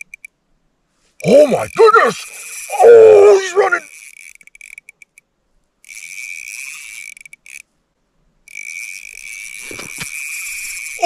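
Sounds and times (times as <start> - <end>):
fishing reel drag buzzing: 2.0 - 5.2, 5.8 - 7.7, 8.4 - 11.0.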